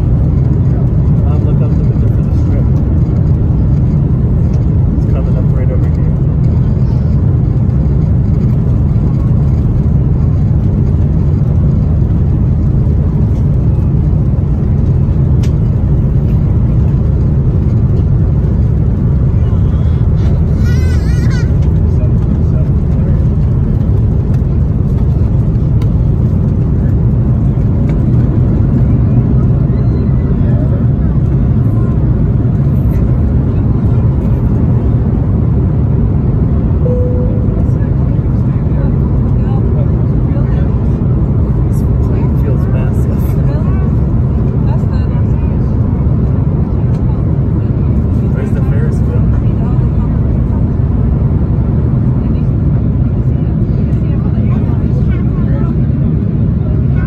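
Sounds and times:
airliner cabin rumble: 0.0 - 57.0
jet engines roaring: 0.0 - 57.0.

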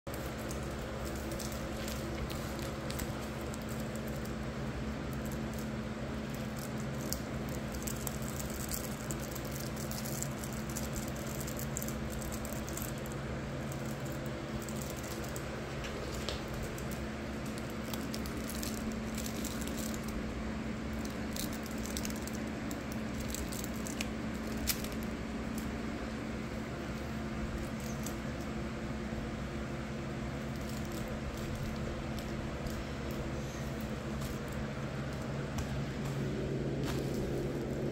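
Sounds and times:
steady low hum: 0.1 - 37.9
soft fur rustling: 31.1 - 37.9.

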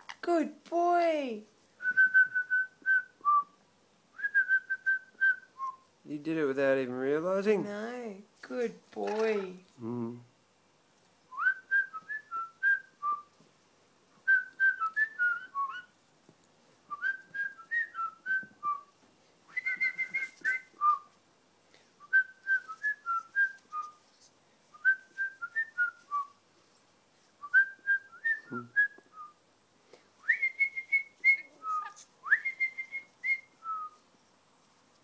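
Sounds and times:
person whistling a tune: 1.8 - 3.5, 27.4 - 29.3, 30.2 - 34.0.

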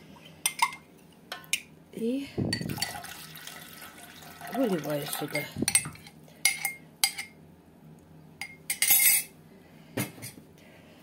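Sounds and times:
kitchenware clattering: 2.6 - 3.2, 5.1 - 7.4, 8.4 - 9.3
glass and cutlery clinking: 8.4 - 9.3.

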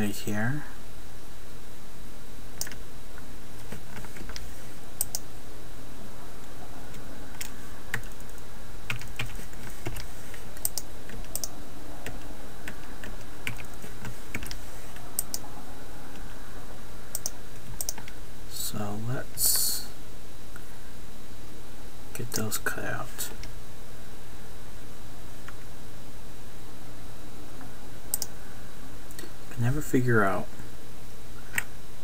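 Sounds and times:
steady low hum: 0.0 - 32.0
keyboard and mouse clicking: 2.6 - 2.8, 3.9 - 5.2, 7.4 - 14.6, 15.2 - 15.4, 17.1 - 18.2, 28.1 - 28.3.

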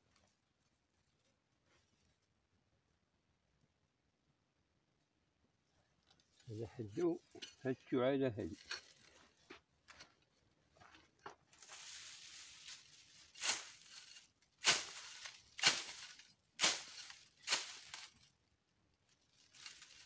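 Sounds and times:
stick swishing through dry grass: 11.5 - 18.3, 19.3 - 20.0.

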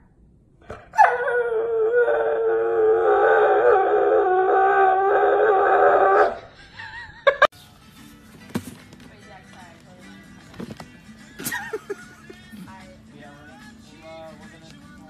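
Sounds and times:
dog howling: 0.9 - 6.4.

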